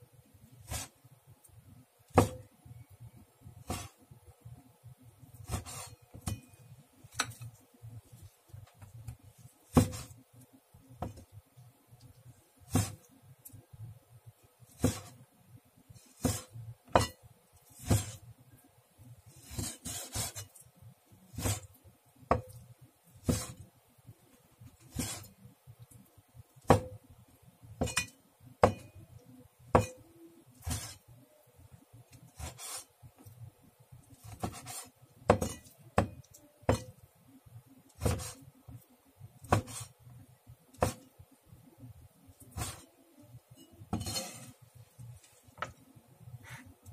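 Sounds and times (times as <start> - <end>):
knife scraping board: 0.6 - 0.9, 3.7 - 4.0, 5.4 - 6.0, 9.7 - 10.2, 12.7 - 13.0, 14.8 - 15.2, 16.0 - 17.1, 17.7 - 18.2, 19.3 - 20.5, 21.3 - 21.7, 23.2 - 23.6, 24.8 - 25.3, 30.6 - 31.0, 32.4 - 32.9, 34.2 - 35.7, 38.0 - 38.4, 39.5 - 39.9, 42.5 - 42.9, 43.9 - 44.6
knife chopping on wooden board: 2.1 - 2.4, 5.4 - 6.4, 9.7 - 10.2, 12.7 - 13.0, 14.7 - 15.2, 16.2 - 17.2, 17.8 - 18.2, 21.3 - 21.7, 22.3 - 22.6, 23.2 - 23.6, 26.7 - 27.0, 27.8 - 28.9, 29.7 - 30.0, 30.6 - 31.0, 34.3 - 36.9, 38.0 - 38.4, 39.4 - 39.9, 40.8 - 41.0.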